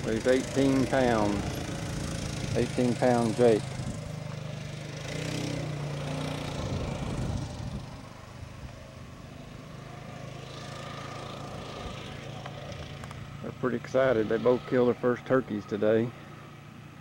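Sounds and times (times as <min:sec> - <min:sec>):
atv engine running: 0:00.0 - 0:17.0.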